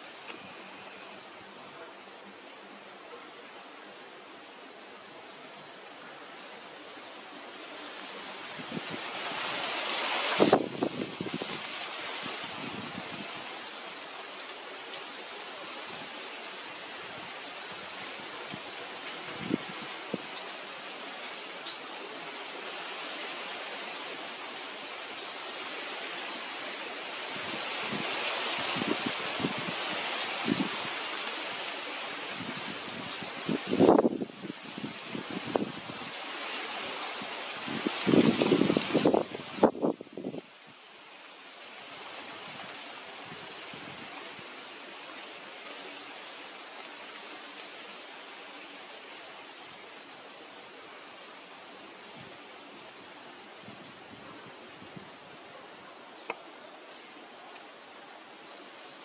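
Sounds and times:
outdoor background hiss: 0:00.0 - 0:59.0
faint ticks: 0:00.2 - 0:00.6, 0:56.2 - 0:57.7.

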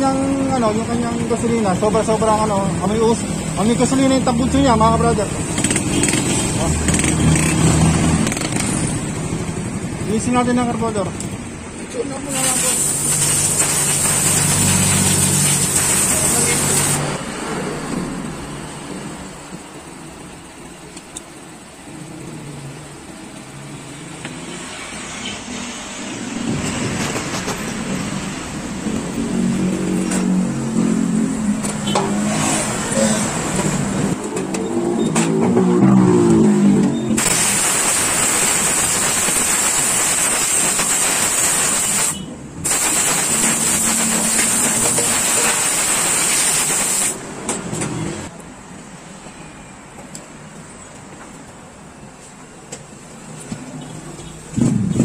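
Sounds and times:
compressed air hissing: 0:12.3 - 0:17.2, 0:37.2 - 0:47.3.

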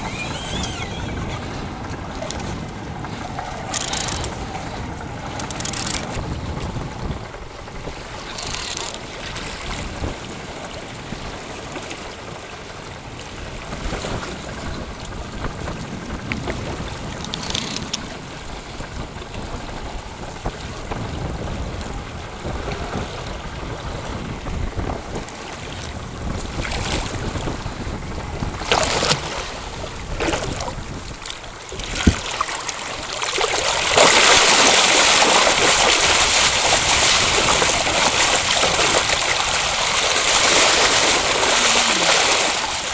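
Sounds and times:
water lapping at boat: 0:00.0 - 0:42.9
wind on microphone: 0:00.0 - 0:42.9
fish splashing: 0:31.8 - 0:42.9
fish thrashing at surface: 0:33.3 - 0:42.9.

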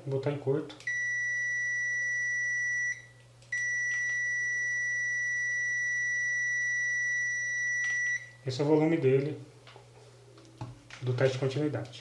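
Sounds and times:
high-pitched multimeter beep: 0:00.9 - 0:08.4.

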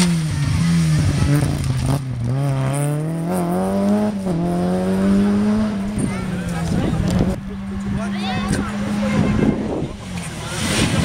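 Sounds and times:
rally car engine accelerating: 0:00.0 - 0:11.0.

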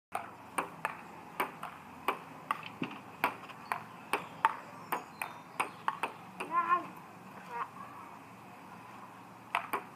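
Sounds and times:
table tennis ball hits: 0:09.5 - 0:09.9.

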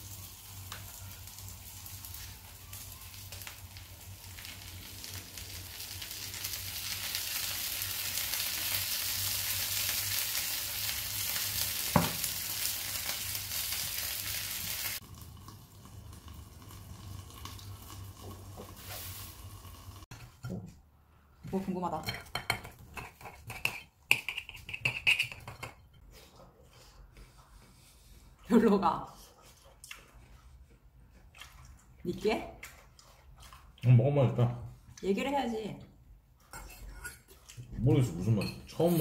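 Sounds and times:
pancake sizzling in frying pan: 0:00.0 - 0:20.1.

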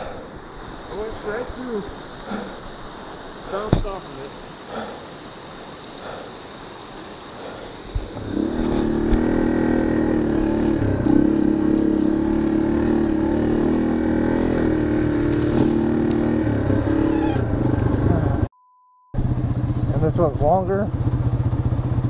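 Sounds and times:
motorcycle engine running: 0:08.2 - 0:18.5, 0:19.2 - 0:22.0.

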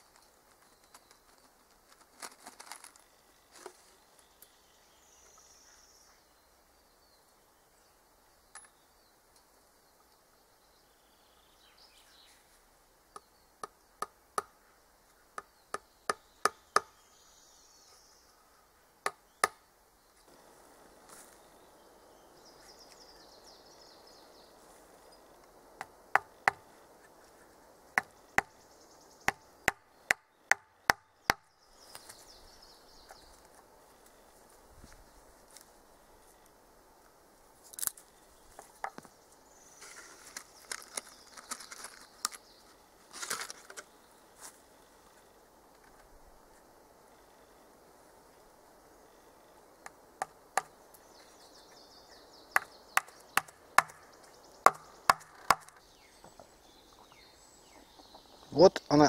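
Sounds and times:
hammer striking wood: 0:25.8 - 0:26.6, 0:52.6 - 0:54.0.

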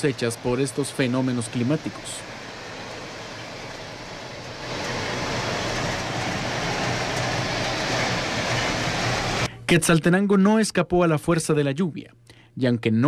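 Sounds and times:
storm water rushing: 0:00.0 - 0:09.5.

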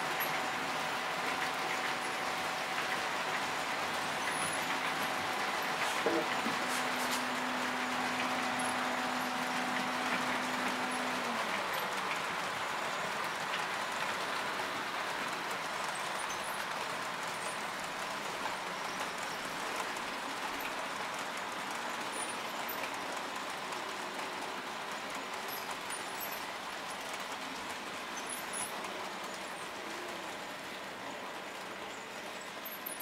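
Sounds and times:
model train wheels clattering on track: 0:00.0 - 0:33.0.

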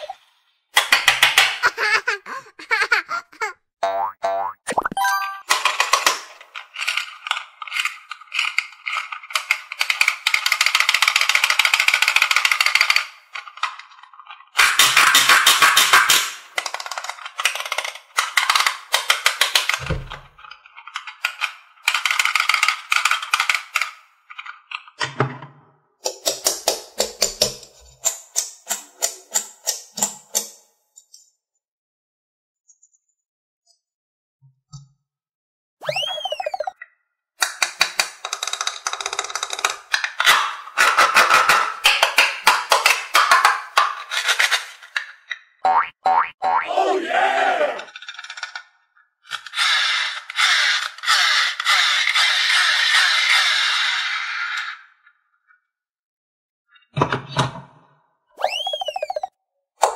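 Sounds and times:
plastic toys clicking and rattling: 0:00.8 - 0:02.1, 0:05.5 - 0:25.0, 0:26.0 - 0:30.6, 0:37.4 - 0:45.4, 0:47.8 - 0:48.7, 0:49.3 - 0:54.8
wind-up toy ratchet: 0:06.6 - 0:13.6, 0:21.0 - 0:24.0, 0:49.3 - 0:54.9.

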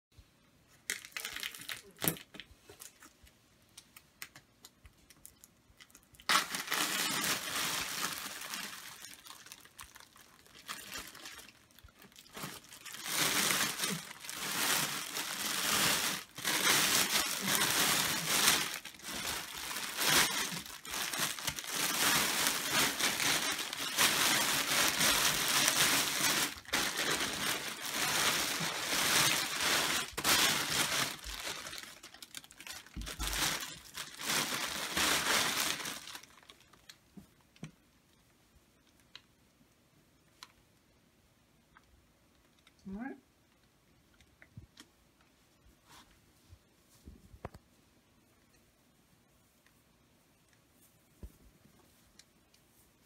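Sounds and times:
plastic bag crinkling: 0:00.8 - 0:03.2, 0:05.1 - 0:37.0.

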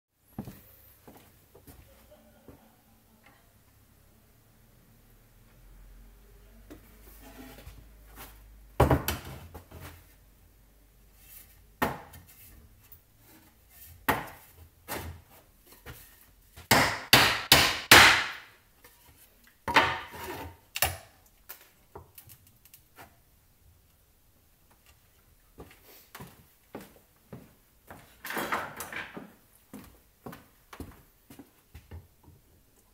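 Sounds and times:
wooden boards knocking and clattering: 0:08.8 - 0:09.7, 0:19.6 - 0:20.2, 0:28.2 - 0:29.3.

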